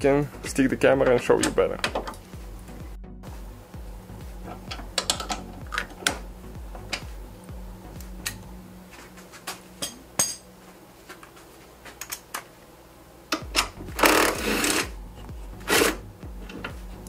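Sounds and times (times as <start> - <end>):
power wrench spinning: 13.9 - 15.0.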